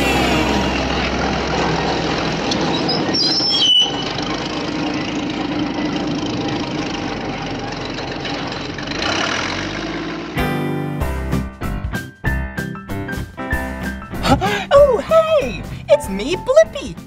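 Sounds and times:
heavy truck engine running: 0.0s - 11.8s
high squeal: 2.6s - 4.3s.

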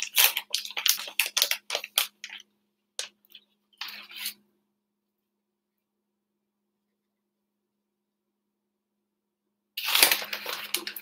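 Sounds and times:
plastic bag crinkling: 0.0s - 2.4s, 9.8s - 11.0s.

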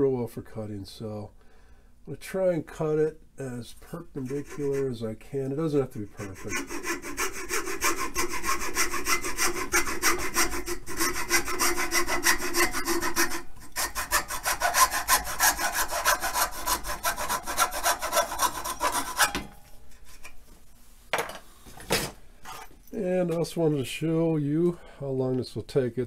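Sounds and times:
hacksaw cutting wood: 6.2s - 19.5s.

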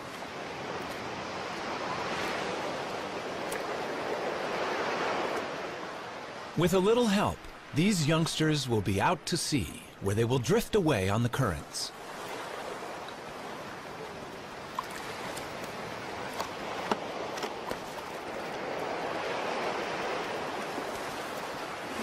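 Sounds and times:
surf washing up a beach: 0.0s - 22.0s.

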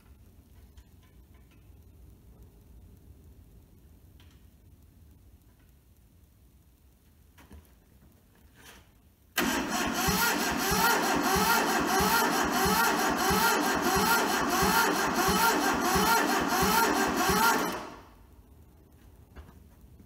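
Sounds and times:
starter motor cranking diesel engine: 9.4s - 18.1s.

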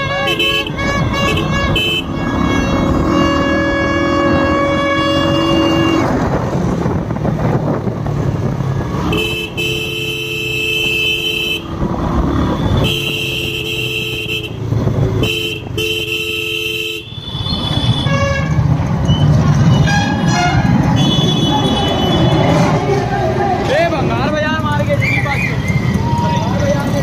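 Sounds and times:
two-tone vehicle horn honking: 0.0s - 6.2s, 9.0s - 11.7s, 12.5s - 14.6s, 15.2s - 18.7s, 19.7s - 22.6s
engine and road noise: 0.0s - 27.0s.

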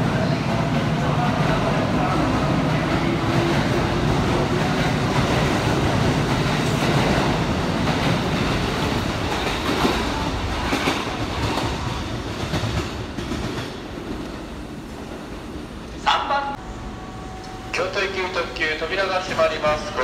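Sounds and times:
electric train pulling out: 16.6s - 20.0s.

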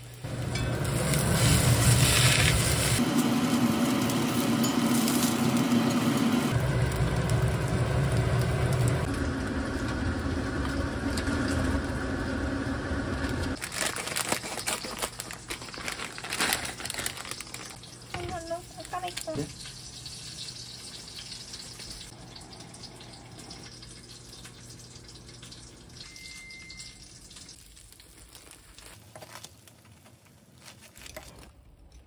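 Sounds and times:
food sizzling in oil: 0.0s - 13.7s, 14.4s - 29.6s
plastic packaging crinkling: 13.6s - 19.8s, 27.6s - 32.0s.

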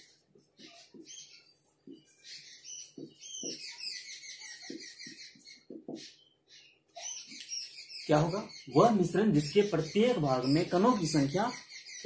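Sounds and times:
marker squeaking on board: 0.0s - 6.2s, 6.9s - 7.8s.

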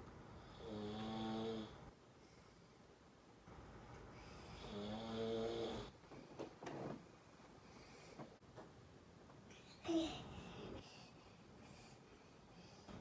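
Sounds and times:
man snoring: 0.5s - 1.9s, 4.6s - 5.9s.

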